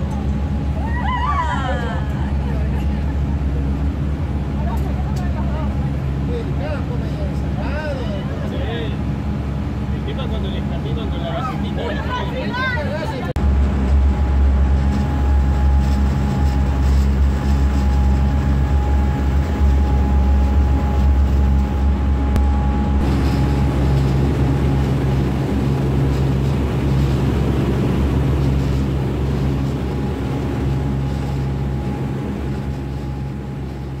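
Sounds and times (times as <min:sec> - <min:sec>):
boat engines droning: 0:00.0 - 0:34.0
water rushing in wake: 0:13.4 - 0:34.0.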